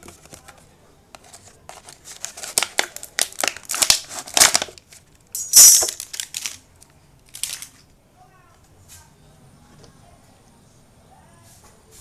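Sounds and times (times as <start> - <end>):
plastic bottle crinkling: 0.0 - 5.2, 5.8 - 7.8.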